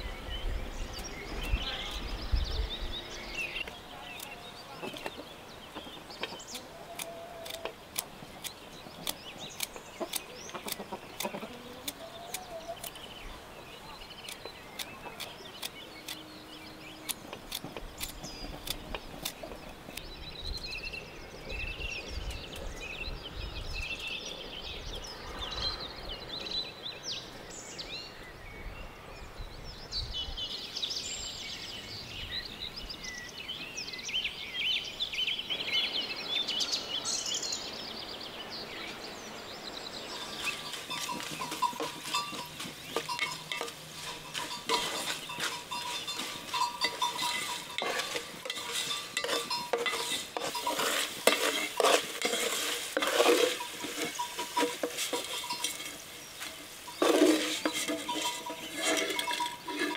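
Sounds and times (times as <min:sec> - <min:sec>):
birds chirping: 0:00.0 - 0:59.9
chickens clucking: 0:03.6 - 0:16.2, 0:17.2 - 0:20.0, 0:40.2 - 0:59.9.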